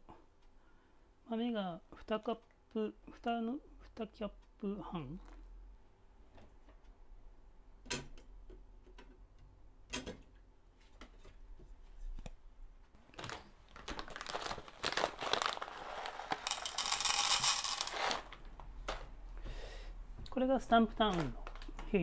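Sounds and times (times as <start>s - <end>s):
paper bag rustling: 13.1s - 18.5s
coffee beans poured into metal bowl: 15.7s - 18.3s.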